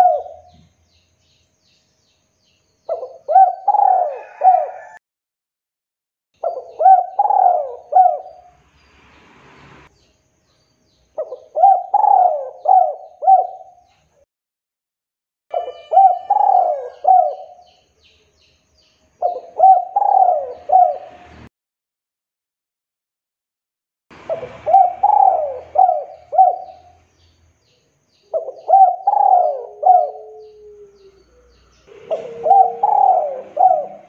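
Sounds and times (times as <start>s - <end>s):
dove cooing: 0.0s - 0.7s, 2.9s - 5.0s, 6.4s - 8.5s, 11.2s - 13.9s, 15.5s - 17.6s, 19.2s - 21.3s, 24.2s - 27.0s, 28.3s - 34.0s.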